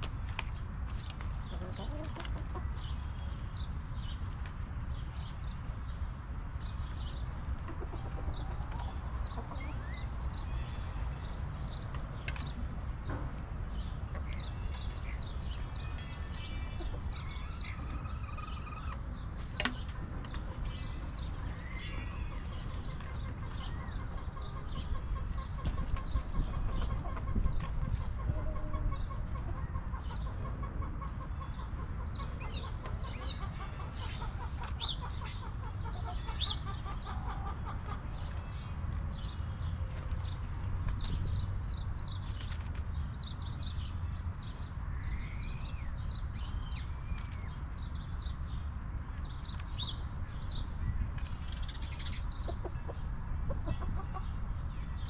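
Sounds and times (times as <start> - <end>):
hens clucking: 1.0 - 2.9, 7.4 - 39.1, 51.8 - 54.8.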